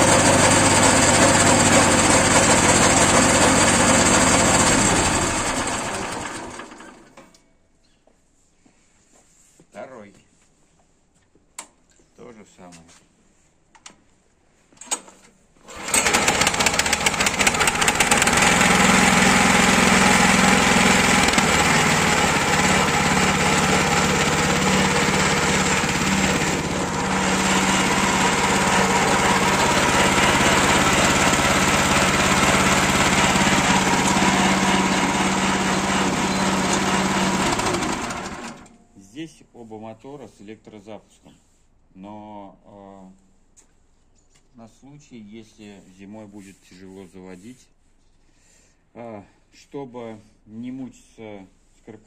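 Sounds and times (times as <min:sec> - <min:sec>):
single-cylinder petrol engine running: 0:00.0 - 0:07.2, 0:15.6 - 0:38.8.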